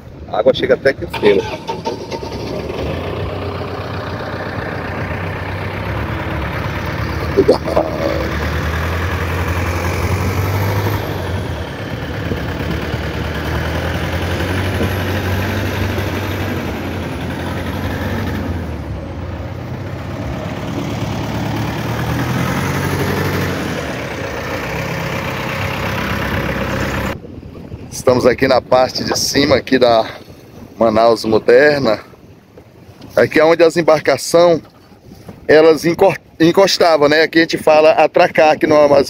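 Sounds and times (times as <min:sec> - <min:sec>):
traffic noise: 0:00.0 - 0:39.0
heavy engines humming: 0:00.9 - 0:27.9.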